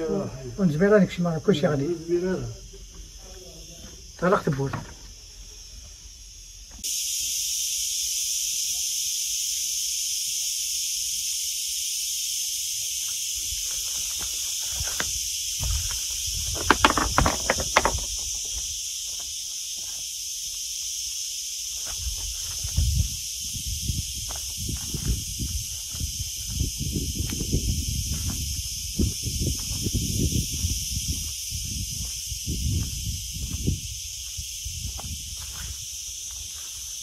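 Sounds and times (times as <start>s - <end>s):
high-pitched insect chorus: 0.0s - 37.0s
sharp knocks: 16.6s - 18.2s.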